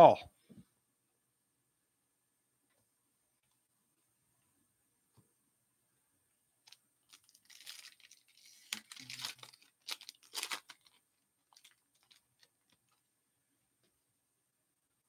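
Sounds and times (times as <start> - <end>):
wrapper tearing and crinkling: 6.7 - 13.0.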